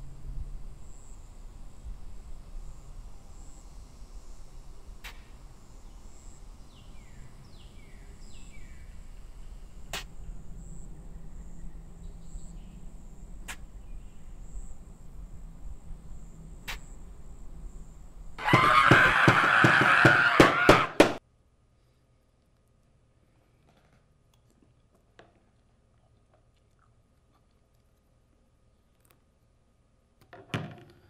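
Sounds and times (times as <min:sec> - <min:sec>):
high pulsing insect buzz: 0:00.0 - 0:20.7
sharp single clicks: 0:09.9 - 0:10.1
rapid knocking strikes: 0:18.4 - 0:21.2.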